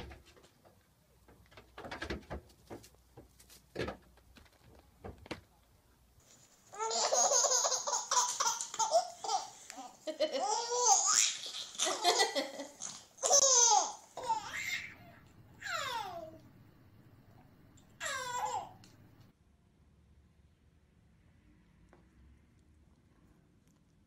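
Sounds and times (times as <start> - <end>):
baby laughing: 6.7 - 16.4, 18.0 - 18.9
woman laughing: 9.8 - 10.7, 11.6 - 12.8.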